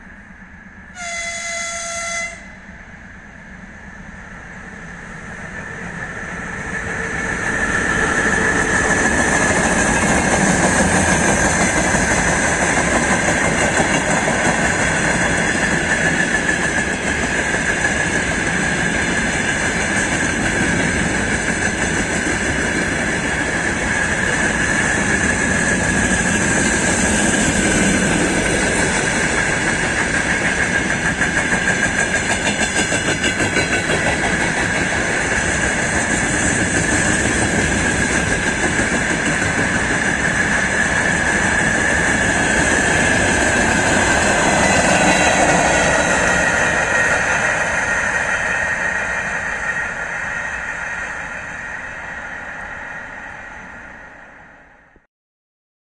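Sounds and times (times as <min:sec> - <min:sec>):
train wheels rumbling on rails: 0:00.0 - 0:54.4
high-pitched whine: 0:39.6 - 0:55.0.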